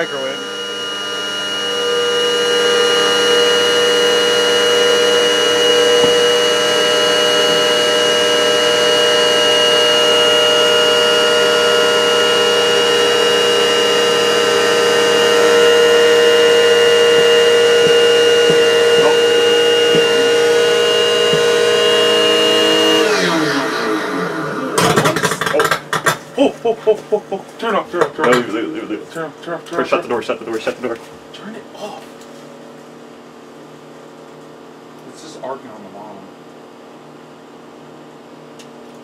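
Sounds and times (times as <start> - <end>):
vacuum cleaner motor whine: 0.0 - 26.5
microwave oven hum: 0.0 - 39.0.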